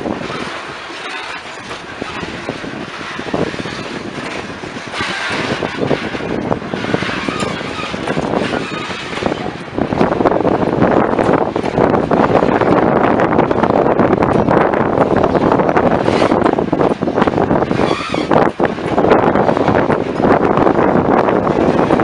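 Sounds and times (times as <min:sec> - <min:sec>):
train wheels rumbling on rails: 0:00.0 - 0:22.0
wheels clanking over rail joints: 0:00.0 - 0:22.0.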